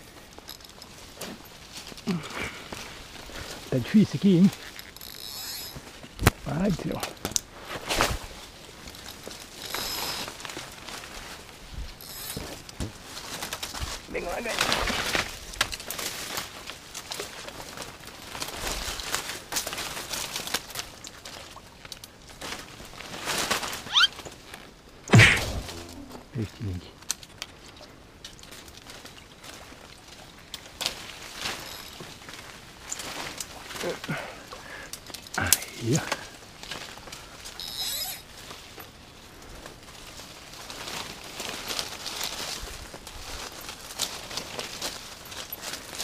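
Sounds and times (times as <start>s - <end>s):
leaves and undergrowth rustling: 0.0s - 46.0s
splashing and crackling water: 8.3s - 26.2s, 27.0s - 37.6s
sharp knock: 25.1s - 26.2s
short zip-like sound: 25.1s - 26.4s.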